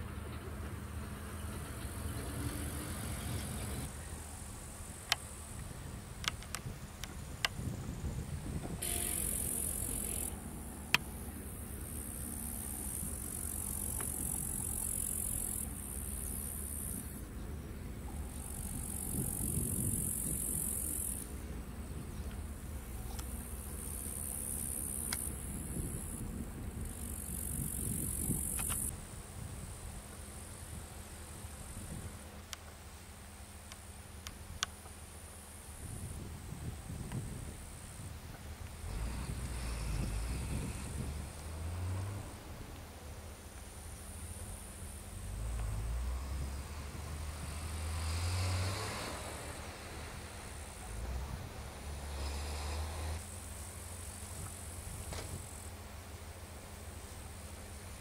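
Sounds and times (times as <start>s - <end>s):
high hiss: 2.4s - 17.3s, 18.0s - 58.0s
crickets trilling: 8.8s - 17.3s, 18.0s - 28.9s.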